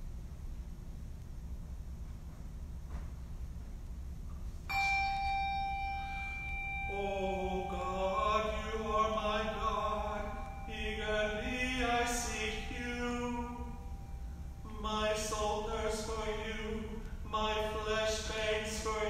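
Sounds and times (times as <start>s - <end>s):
held note: 4.7s - 15.1s
man chanting: 6.9s - 14.0s, 14.6s - 19.0s.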